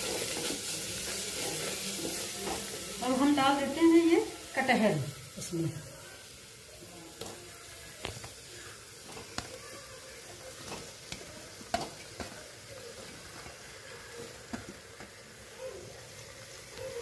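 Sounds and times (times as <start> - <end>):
masala sizzling in a pot: 0.0 - 17.0.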